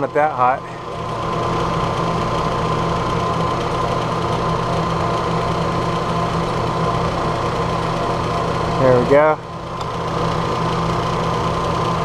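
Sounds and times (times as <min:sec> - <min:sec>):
boiler blower fan humming: 0:00.0 - 0:12.0.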